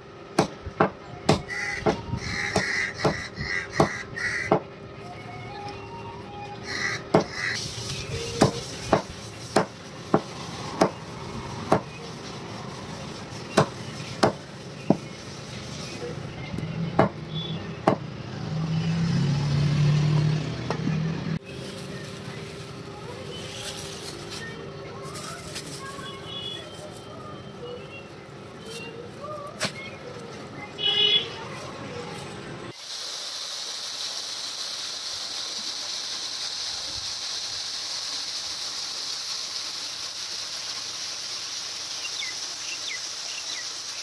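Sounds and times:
knife chopping on wooden block: 0:08.4 - 0:11.0, 0:11.7 - 0:11.9, 0:13.6 - 0:15.0.

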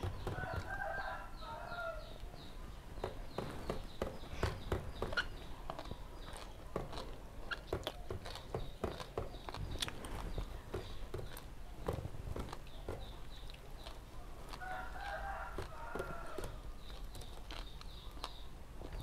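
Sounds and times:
wet chewing and lip smacks: 0:04.9 - 0:19.0.

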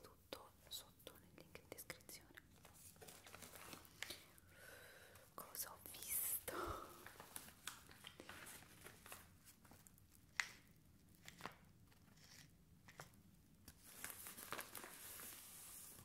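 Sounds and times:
paper envelope crinkling: 0:02.6 - 0:04.2, 0:07.0 - 0:10.6, 0:13.7 - 0:16.0.

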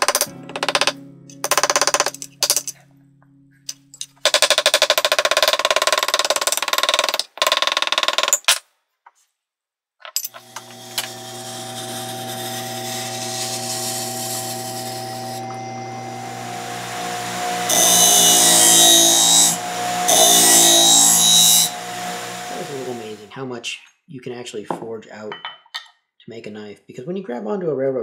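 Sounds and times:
electric motor humming: 0:10.3 - 0:23.3.

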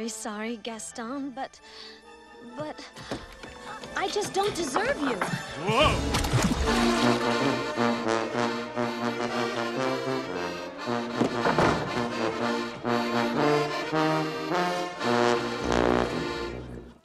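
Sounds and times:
brass band playing: 0:05.6 - 0:17.0.

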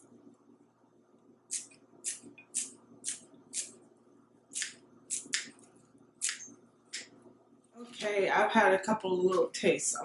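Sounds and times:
kitchen shears snipping onion: 0:04.5 - 0:05.5, 0:06.2 - 0:06.4.

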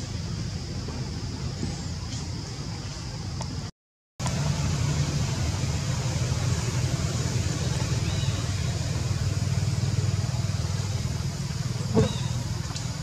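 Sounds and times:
hiss: 0:04.3 - 0:13.0.

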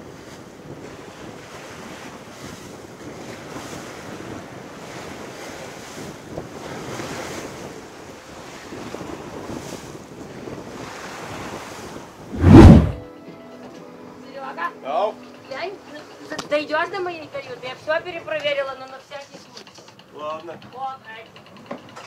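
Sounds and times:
water rushing along a hull: 0:00.0 - 0:13.0
wind buffeting microphone: 0:12.3 - 0:13.0.

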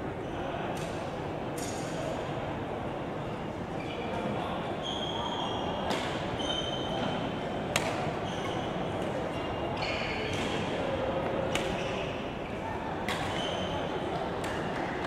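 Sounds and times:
murmur of spectators: 0:00.0 - 0:15.0
shoes squeaking on floor: 0:06.4 - 0:07.1, 0:08.2 - 0:08.8
racket hitting shuttlecock: 0:07.7 - 0:08.0, 0:11.5 - 0:11.8.

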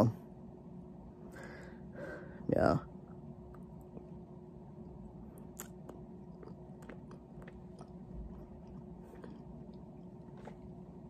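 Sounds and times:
person chewing food: 0:04.8 - 0:11.0.

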